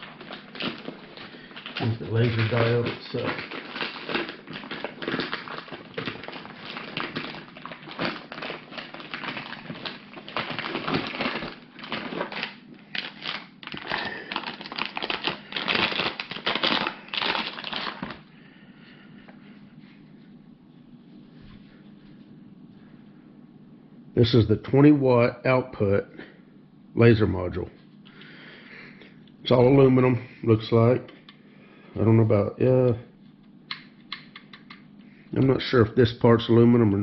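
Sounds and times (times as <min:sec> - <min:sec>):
packaging wrap crinkling: 0:00.0 - 0:18.3.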